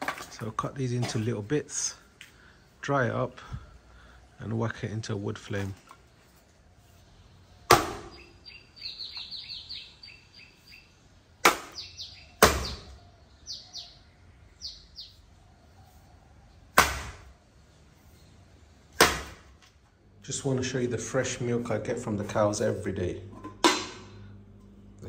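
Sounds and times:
bird chirping: 5.9 - 16.8
axe chopping log: 7.7 - 8.2, 11.4 - 11.8, 12.4 - 13.0, 16.7 - 17.3, 18.9 - 19.5.

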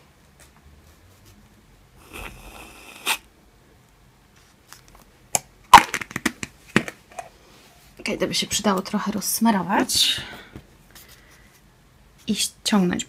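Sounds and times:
aerosol whipped cream spraying: 2.0 - 3.2.

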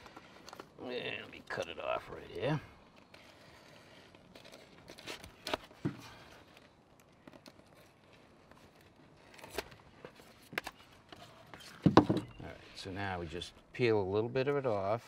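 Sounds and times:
paper backing crinkling: 0.0 - 11.8.

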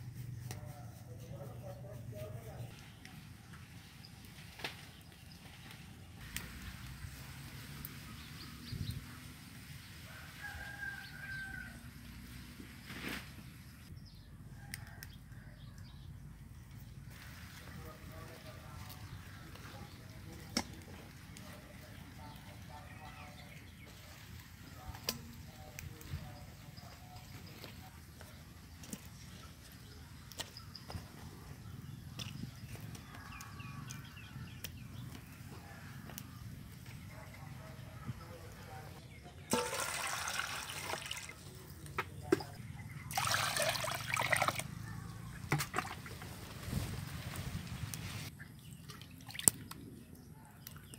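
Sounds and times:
water pouring into steel basin: 39.5 - 41.5, 43.1 - 44.6.

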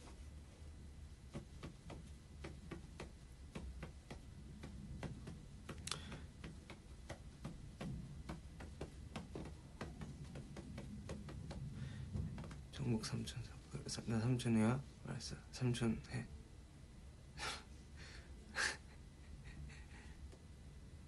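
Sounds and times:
low room hum: 0.0 - 21.0
faint clicking and tapping: 1.1 - 16.2.

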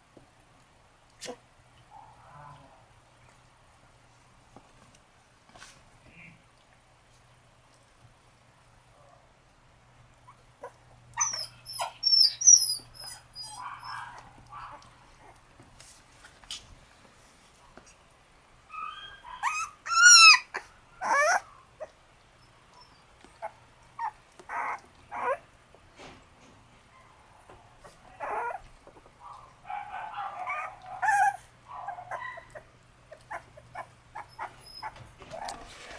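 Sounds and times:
puppies yipping and whining: 10.2 - 15.4, 18.7 - 25.5, 27.4 - 35.9.

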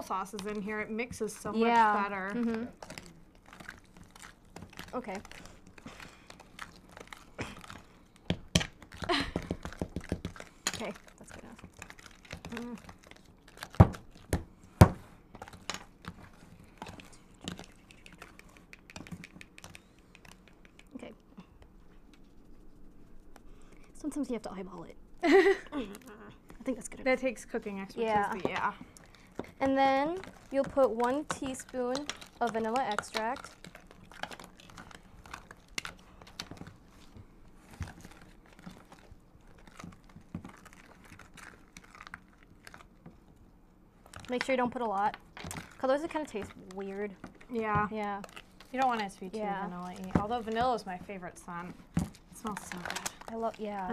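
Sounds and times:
utensils clicking and scraping: 28.0 - 37.1.

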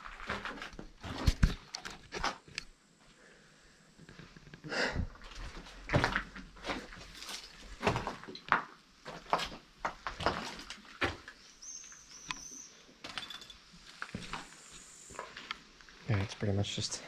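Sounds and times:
footsteps crunching on rubble: 0.0 - 2.4, 5.1 - 11.4, 13.0 - 14.5.

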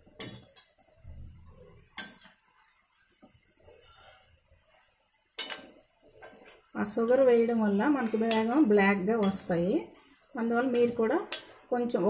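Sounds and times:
oil sizzling: 0.0 - 12.0
steel spoon clinking on pan: 9.2 - 9.5.

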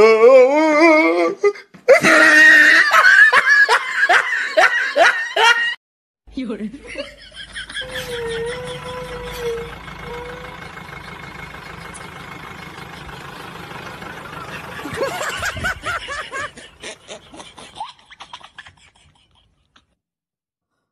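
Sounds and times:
people laughing: 1.9 - 5.8, 6.7 - 9.8, 14.3 - 19.6
bus engine running: 6.8 - 17.8.

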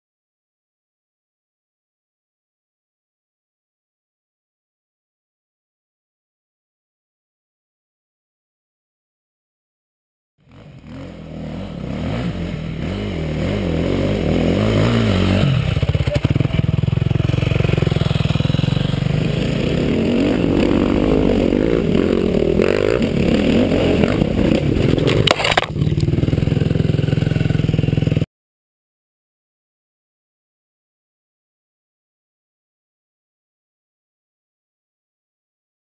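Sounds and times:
dirt bike engine revving: 10.4 - 28.3
bike crashing into brush: 24.0 - 26.3.

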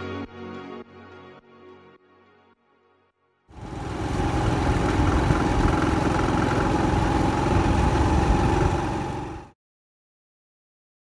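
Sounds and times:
traffic engines rumbling: 3.6 - 9.5.

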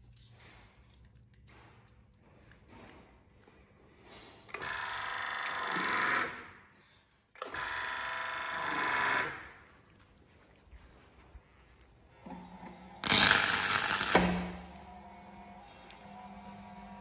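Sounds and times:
grinding wheel whining: 12.3 - 17.0.

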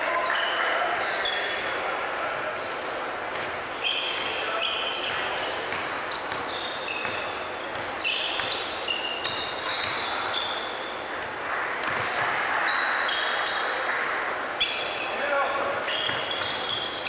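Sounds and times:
sneakers squeaking on floor: 0.0 - 1.8, 2.5 - 17.0
basketball bouncing: 5.1 - 10.2, 11.1 - 12.4, 16.0 - 16.7.

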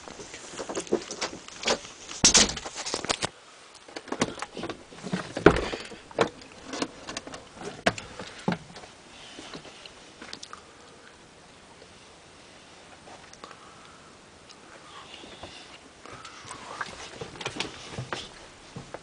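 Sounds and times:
knocks clicks and rustles: 0.0 - 10.5, 15.4 - 19.0.

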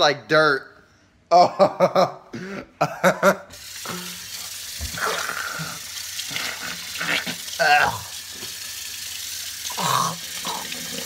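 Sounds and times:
man coughing and gagging: 1.3 - 4.0
tap water running: 3.5 - 11.0.

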